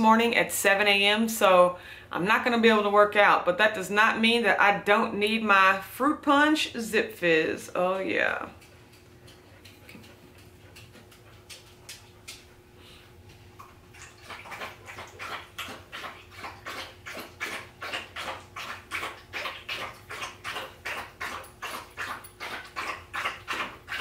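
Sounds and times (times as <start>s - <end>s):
dog lapping water: 8.2s - 24.0s.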